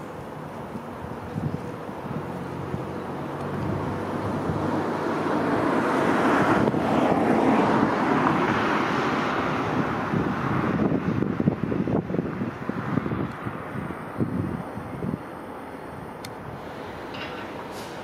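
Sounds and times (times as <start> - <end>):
diesel locomotive engine: 0.0 - 18.0
train wheel and rail noise: 15.2 - 18.0.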